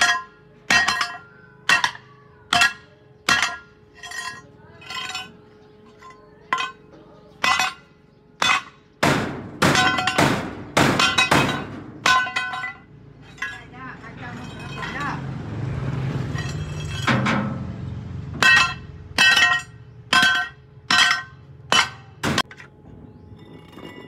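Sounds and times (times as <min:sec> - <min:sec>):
hammer striking metal: 0:07.4 - 0:13.6, 0:18.4 - 0:22.7.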